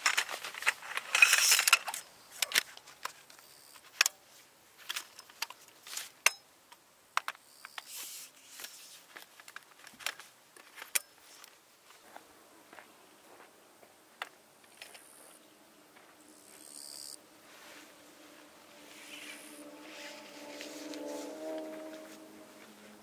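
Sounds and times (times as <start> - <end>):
rustling: 0.0 - 6.3, 7.8 - 12.2, 17.4 - 23.0
camping gear clicking and clinking: 0.0 - 7.9, 8.5 - 12.1, 14.2 - 15.4.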